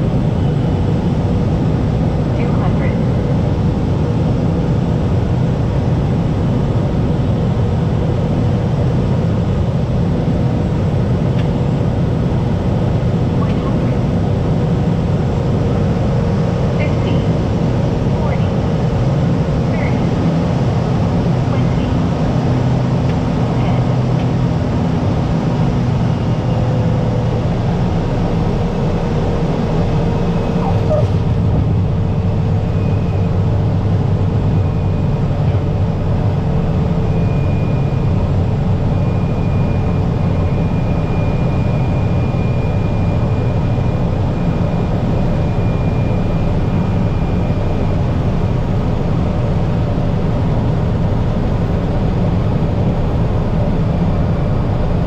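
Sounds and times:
turboprop engine drone: 0.0 - 55.0.

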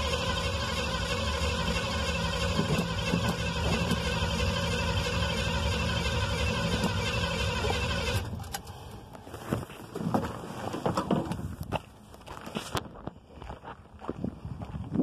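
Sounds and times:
pickup engine running with hiss: 0.0 - 8.2.

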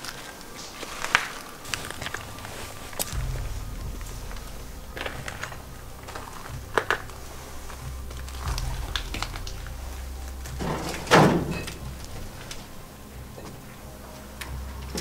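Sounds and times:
footsteps crunching over rubble: 0.0 - 3.2.

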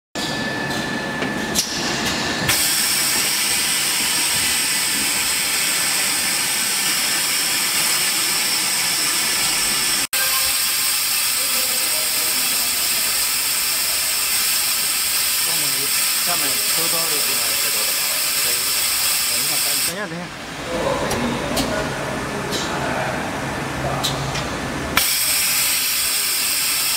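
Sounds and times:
lathe mechanical noise: 0.3 - 20.6, 24.8 - 26.9
loud steady high hiss: 2.5 - 20.5, 25.0 - 26.9.

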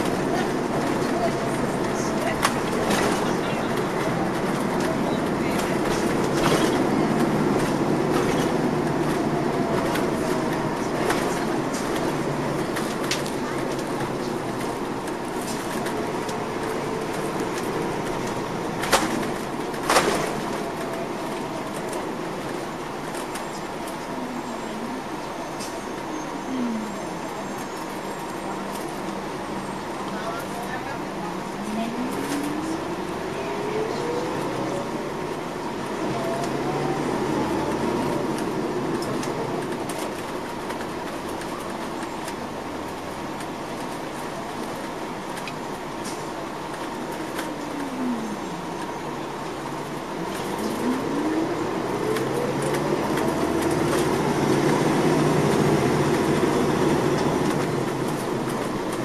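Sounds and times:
coach engine hum: 0.0 - 59.0
tyres on the road: 0.0 - 59.0.

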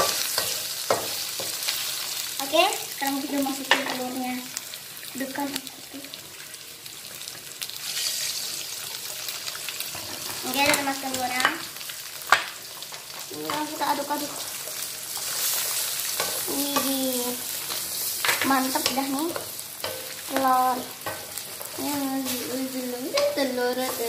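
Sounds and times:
food sizzling in a wok: 0.0 - 24.0
wooden spatula scraping wok: 13.4 - 24.0.

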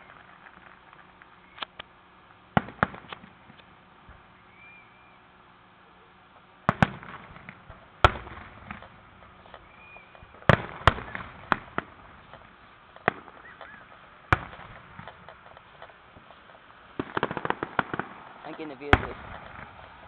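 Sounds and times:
fireworks bursting: 0.0 - 20.0
fireworks crackle: 0.0 - 20.0.

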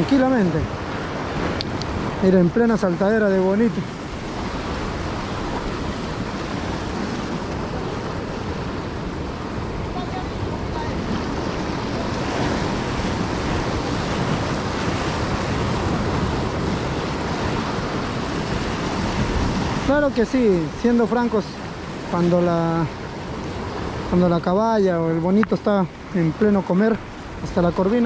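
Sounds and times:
sea surf washing on shore: 0.0 - 28.0
wind buffeting microphone: 0.0 - 28.0.

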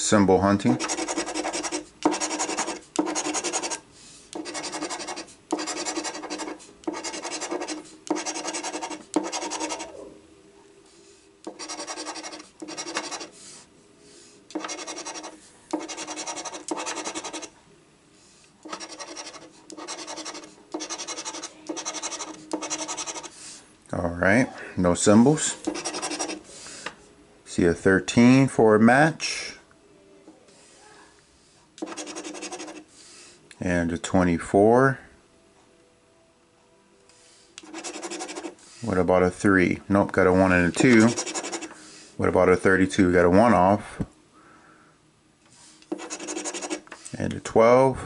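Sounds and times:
coin scraping scratch-off ticket: 0.8 - 3.8, 4.4 - 9.9, 11.5 - 13.3, 14.5 - 17.5, 18.7 - 23.4, 25.7 - 26.4, 31.8 - 32.8, 37.6 - 38.6, 40.8 - 41.7, 45.9 - 47.0.

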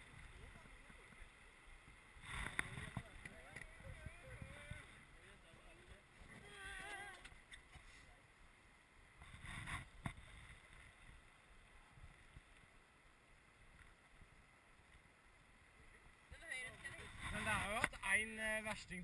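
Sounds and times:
low river rumble: 0.0 - 19.0.

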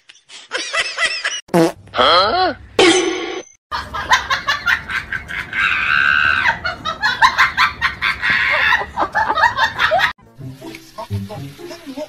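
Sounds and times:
person laughing hard: 3.8 - 10.1.

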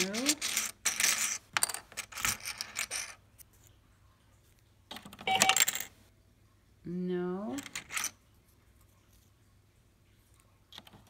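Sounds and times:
coins clattering into toy cash register: 0.0 - 3.2, 5.1 - 5.9, 7.5 - 8.2.

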